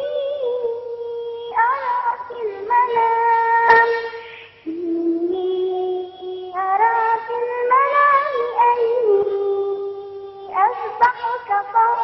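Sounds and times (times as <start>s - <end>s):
girl chanting recitation: 0.0s - 12.0s
sharp click: 3.7s - 4.6s.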